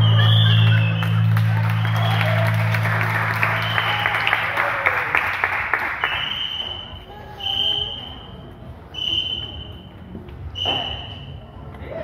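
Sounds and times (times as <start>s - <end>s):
audience applause: 0.0s - 6.5s
short high whistle tones: 6.0s - 9.9s, 10.5s - 11.6s.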